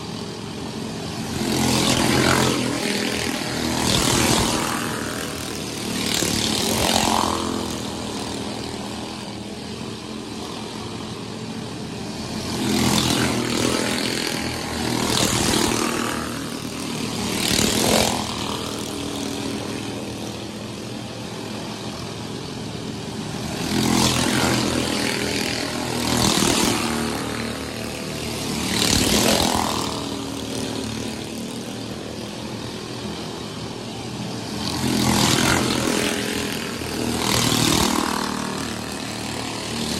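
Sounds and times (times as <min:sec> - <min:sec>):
race car engines passing: 0:00.0 - 0:39.9
steady drone of race cars: 0:00.0 - 0:39.9.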